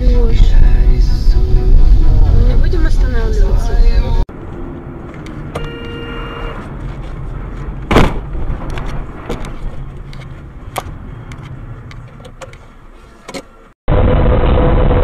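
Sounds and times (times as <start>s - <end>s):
car road and engine rumble: 0.0s - 14.7s
loud sudden thump: 7.9s - 8.7s.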